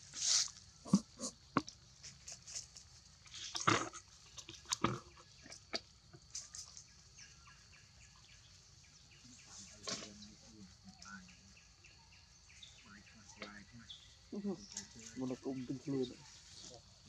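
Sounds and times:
bird chirps: 6.3s - 16.7s.

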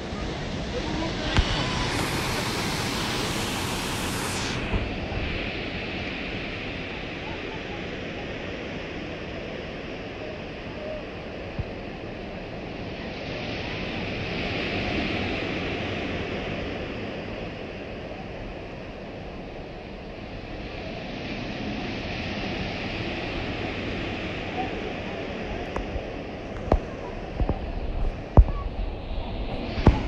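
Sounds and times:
wind buffeting microphone: 0.0s - 7.8s, 21.7s - 30.0s
ocean surf breaking: 0.0s - 9.3s, 21.4s - 30.0s.

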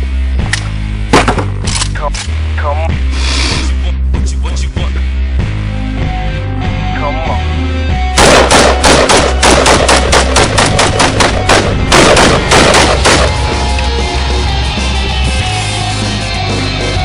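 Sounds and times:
rock music: 0.0s - 17.0s
rifle firing rapid shots: 8.2s - 13.5s.

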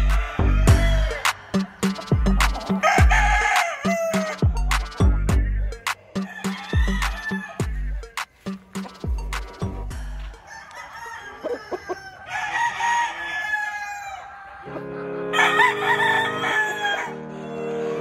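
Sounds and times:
rooster crowing: 0.0s - 4.5s, 6.1s - 8.0s, 10.0s - 14.7s, 15.3s - 18.0s
background music with a beat: 0.0s - 10.5s.

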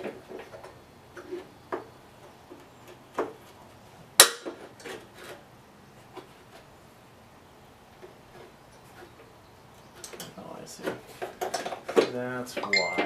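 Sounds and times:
parts clicking and knocking: 10.0s - 13.0s.

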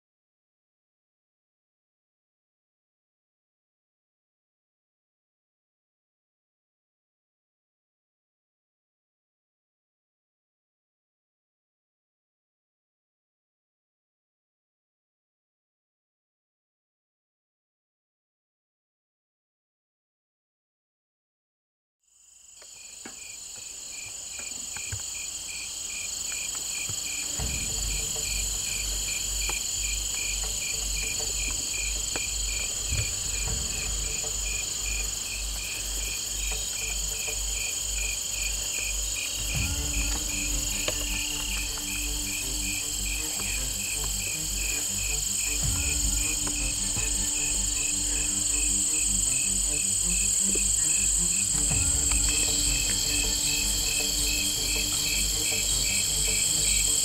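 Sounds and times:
crickets and insects trilling: 22.1s - 57.0s
low pulsing beat: 27.0s - 57.0s
sustained low chords: 27.0s - 57.0s.

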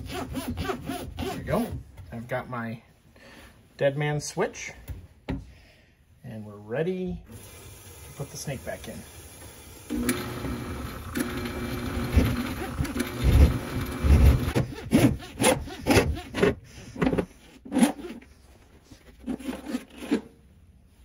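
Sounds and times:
drain snake machine humming: 9.7s - 14.6s.

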